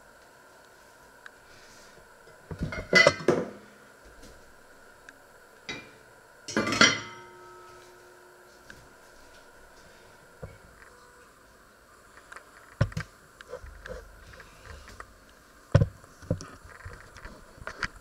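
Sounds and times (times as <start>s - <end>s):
cookware clanking: 2.6s - 3.5s, 5.7s - 7.5s
pot lid set down ringing: 6.5s - 7.4s.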